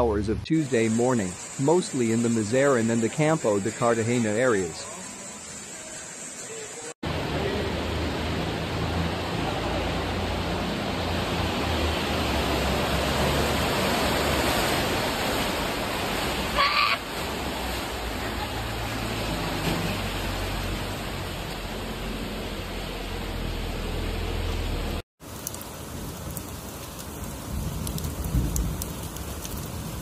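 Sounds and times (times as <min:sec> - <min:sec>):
heavy rain: 0:00.0 - 0:30.0
rushing floodwater: 0:00.0 - 0:30.0.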